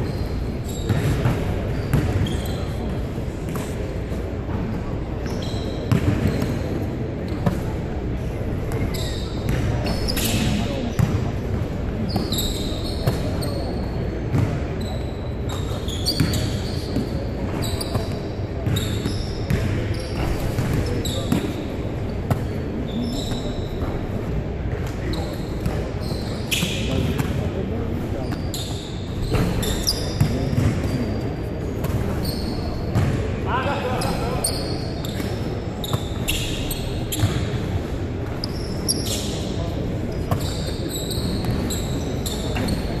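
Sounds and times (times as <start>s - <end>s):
sneakers squeaking: 0.0s - 43.0s
basketballs bouncing on wood floor: 5.9s - 6.6s, 29.2s - 31.1s, 32.9s - 33.2s.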